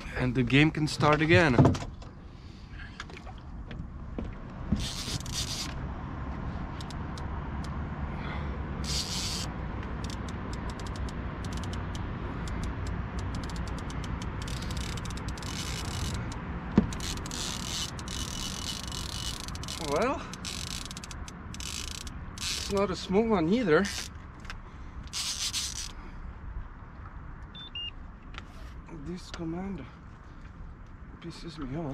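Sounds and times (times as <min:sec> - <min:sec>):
fishing reel drag buzzing: 0:04.8 - 0:05.8, 0:08.8 - 0:22.8, 0:23.8 - 0:24.1, 0:25.1 - 0:26.0
reel clicks: 0:04.8 - 0:05.8, 0:06.8 - 0:07.8, 0:08.8 - 0:22.9, 0:23.8 - 0:26.0.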